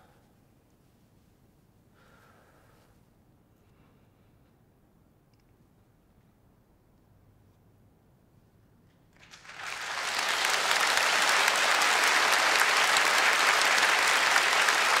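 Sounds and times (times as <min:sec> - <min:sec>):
audience applauding: 0:09.2 - 0:15.0.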